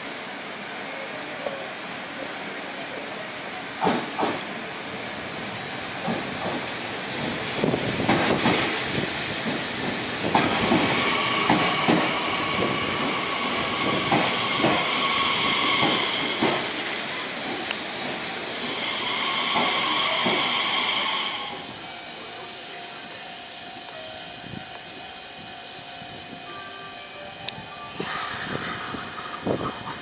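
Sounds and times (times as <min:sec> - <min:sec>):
train wheels clacking over rail joints: 0:03.8 - 0:04.5, 0:06.0 - 0:20.6.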